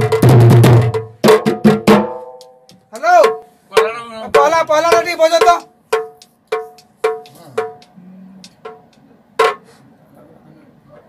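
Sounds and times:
hand drum strokes ringing: 0:01.8 - 0:09.6.

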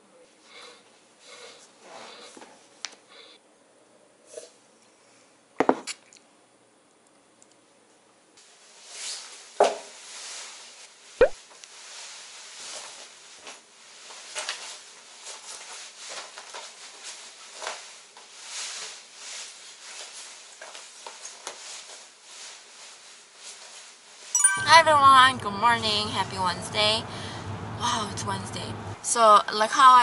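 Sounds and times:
rustling of nylon coat: 0:08.6 - 0:11.1, 0:11.7 - 0:24.3.

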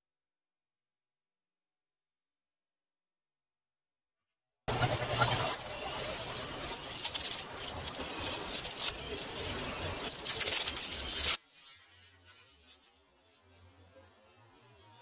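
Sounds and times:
paper and tape crinkling: 0:06.3 - 0:12.9
tape tearing: 0:06.9 - 0:11.4.

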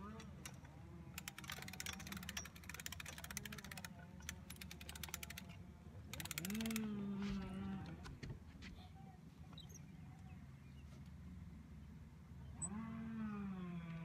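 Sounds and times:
ratchet clicks of umbrella crank: 0:00.0 - 0:06.9.

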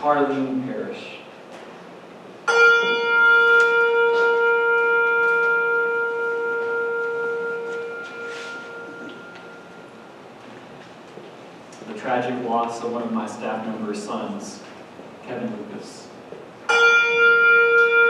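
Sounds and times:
hand bell ringing: 0:02.5 - 0:10.1.

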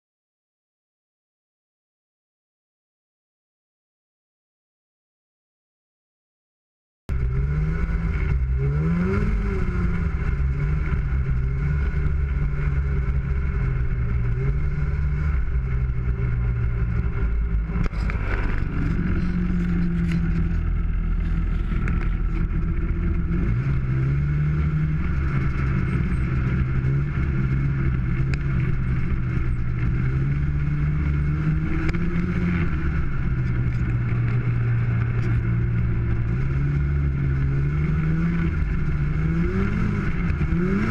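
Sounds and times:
snowmobile engine revving: 0:07.1 - 0:40.9.

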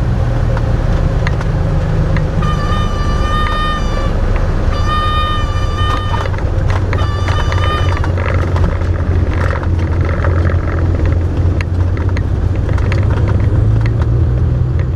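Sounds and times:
propeller plane engine droning: 0:00.0 - 0:14.9
airframe rattles and clicks: 0:00.6 - 0:14.9
high whining tone: 0:02.0 - 0:11.3.

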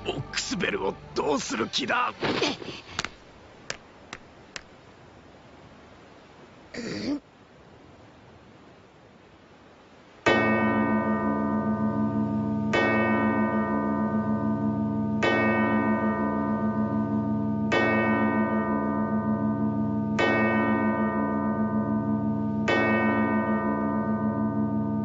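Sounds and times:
large bell tolling: 0:10.3 - 0:25.0.

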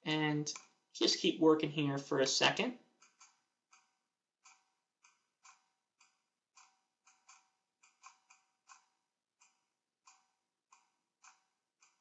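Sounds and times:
computer mouse clicks: 0:03.0 - 0:12.0.

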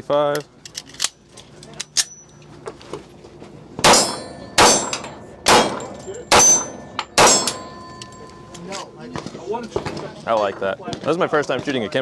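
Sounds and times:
pistol shots: 0:03.8 - 0:07.8
steel targets ringing: 0:03.8 - 0:08.7.

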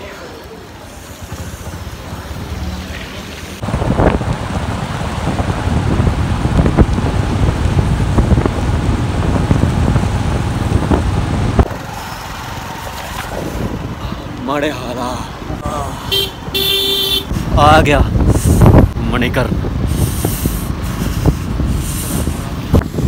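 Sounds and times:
outdoor noise: 0:00.0 - 0:23.0
wind buffeting microphone: 0:03.6 - 0:14.4, 0:17.2 - 0:23.0.

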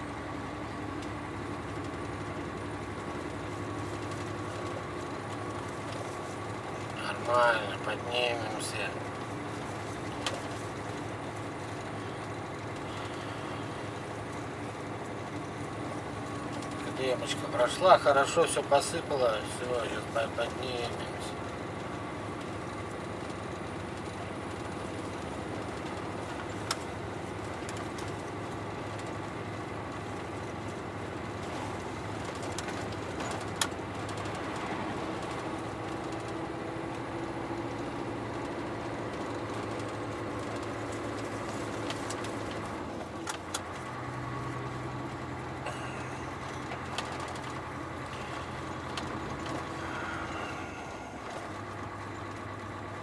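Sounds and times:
truck engine droning: 0:00.0 - 0:53.0
sharp clicks and rattles: 0:03.0 - 0:29.3, 0:31.4 - 0:44.1, 0:45.1 - 0:52.6.

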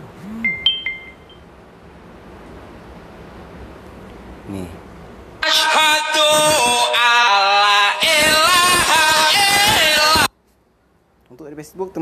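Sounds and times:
low background hiss and hum: 0:00.0 - 0:12.0
phone notification tone: 0:00.4 - 0:01.4.

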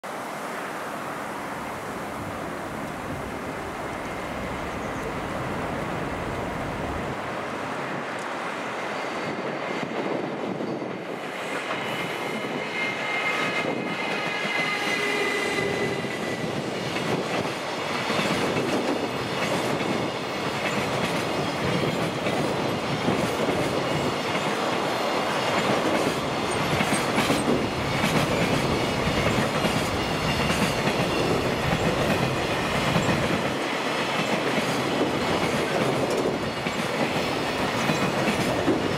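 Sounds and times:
locomotive high whine: 0:00.8 - 0:09.4
wheels clacking over rail joints: 0:17.0 - 0:38.9.

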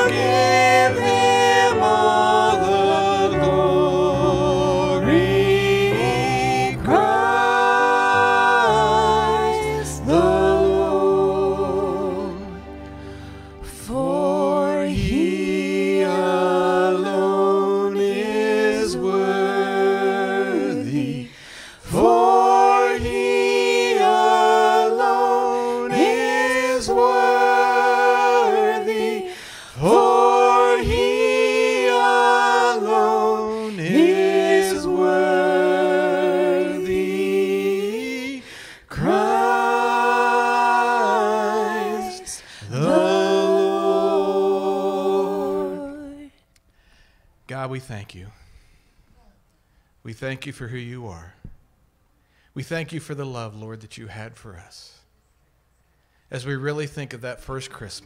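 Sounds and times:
singers at microphones: 0:00.0 - 0:13.0, 0:13.6 - 0:46.4
congregation singing: 0:00.0 - 0:46.4.

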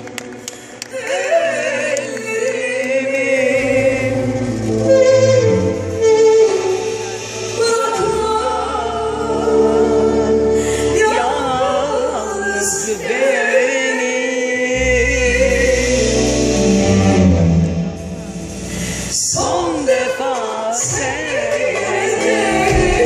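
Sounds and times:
backing band playing: 0:00.0 - 0:12.1, 0:14.7 - 0:23.0
woman singing into a microphone: 0:07.6 - 0:16.4.

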